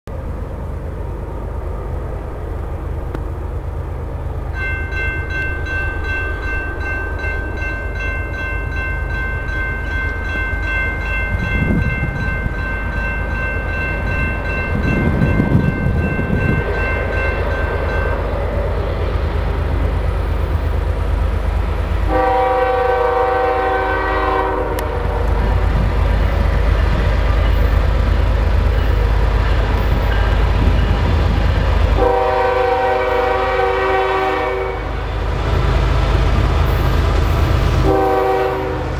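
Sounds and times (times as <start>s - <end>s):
locomotive engine and rail rumble: 0.0s - 38.9s
high steady ringing: 4.5s - 18.4s
train horn blast: 22.0s - 25.8s, 31.9s - 35.1s, 37.8s - 38.9s.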